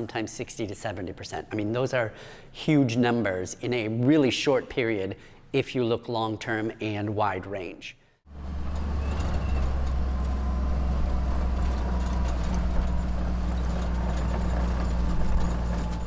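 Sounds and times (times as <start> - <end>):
vehicle engine droning: 8.3 - 16.0.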